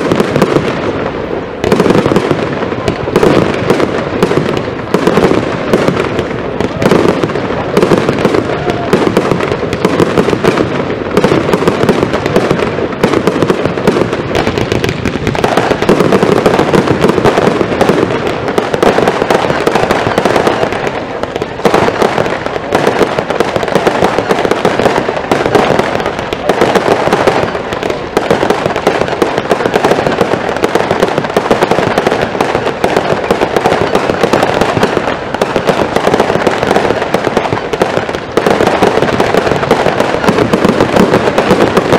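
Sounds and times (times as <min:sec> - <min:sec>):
fireworks bangs and crackles: 0:00.0 - 0:41.9.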